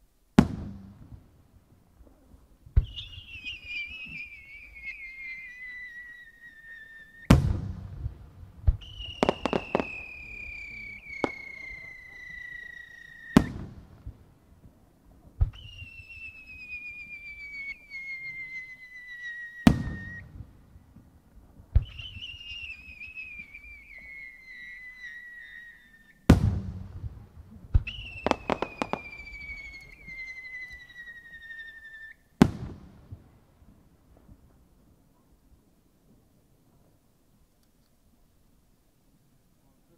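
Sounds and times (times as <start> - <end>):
firework bursting with a bang: 0.4 - 1.2, 7.3 - 12.6, 13.3 - 14.2, 19.6 - 20.4, 26.3 - 30.2, 32.4 - 33.2
firework whistling: 2.8 - 13.8, 15.4 - 20.4, 21.7 - 26.8, 27.8 - 32.9.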